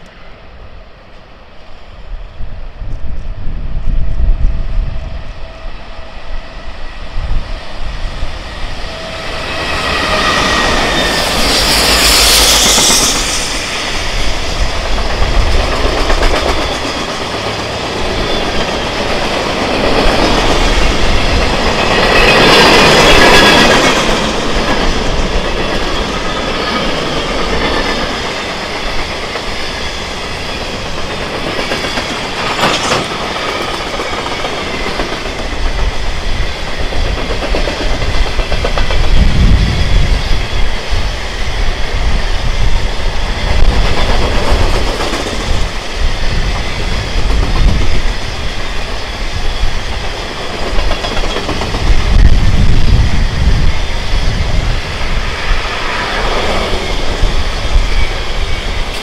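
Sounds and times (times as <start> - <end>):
freight train cars rolling: 3.9 - 59.0
high wheel screech: 8.4 - 14.7.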